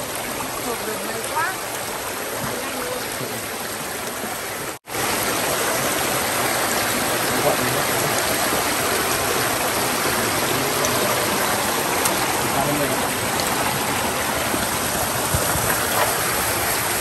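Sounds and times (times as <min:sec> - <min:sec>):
stream splashing over stones: 0:00.0 - 0:17.0.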